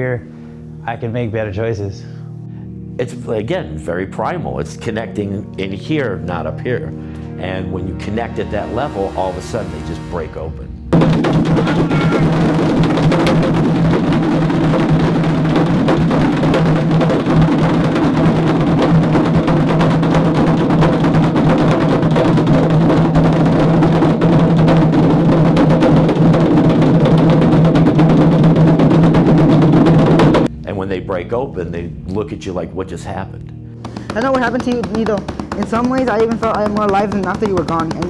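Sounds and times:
hand drums playing: 8.2s - 32.6s, 33.7s - 38.0s.

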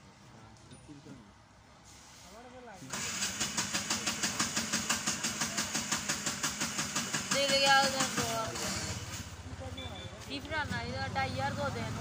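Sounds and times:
engine running: 2.9s - 9.7s.

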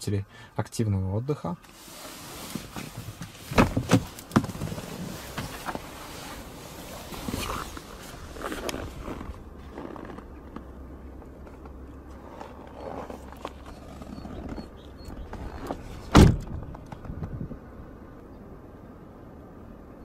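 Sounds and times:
rustling and handling noises: 1.6s - 16.1s
car door shutting: 2.5s - 7.8s, 14.0s - 17.4s.

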